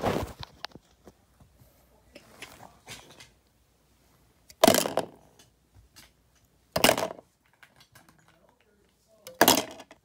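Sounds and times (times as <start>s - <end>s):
plastic toolbox clattering: 4.6s - 5.2s, 6.8s - 8.4s, 9.3s - 10.0s.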